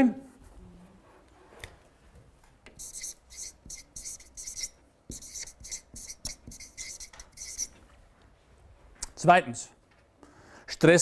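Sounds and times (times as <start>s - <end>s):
marker pen scratching on paper: 2.8s - 7.8s.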